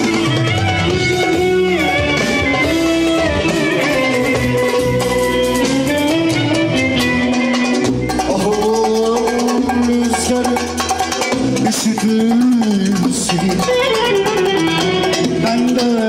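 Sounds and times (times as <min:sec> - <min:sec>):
clarinet melody: 0:00.0 - 0:08.4
band accompaniment: 0:00.0 - 0:16.0.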